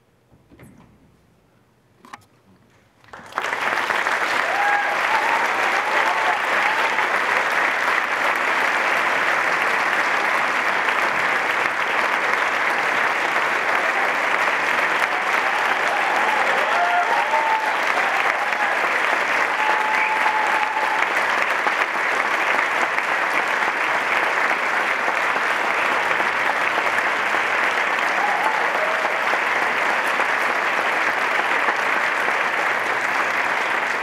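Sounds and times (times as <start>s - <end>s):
audience applauding: 3.0s - 34.0s.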